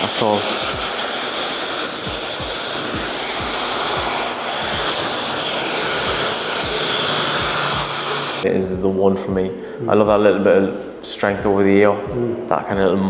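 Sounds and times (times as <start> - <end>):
hair dryer blowing: 0.0 - 8.4
background music: 0.0 - 13.0.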